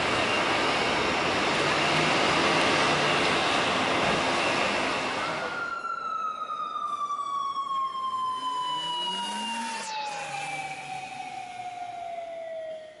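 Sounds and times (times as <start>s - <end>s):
siren-like falling tone: 4.4s - 13.0s.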